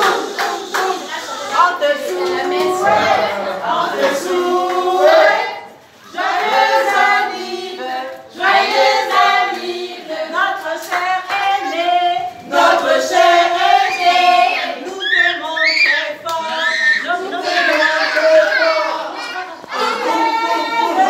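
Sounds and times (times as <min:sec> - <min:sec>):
choir singing: 0:00.0 - 0:14.9.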